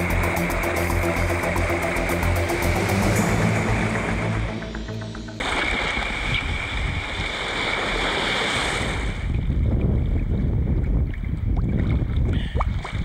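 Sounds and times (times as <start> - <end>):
choppy sea washing: 5.4 - 13.0
wind buffeting microphone: 5.6 - 8.0, 8.6 - 13.0.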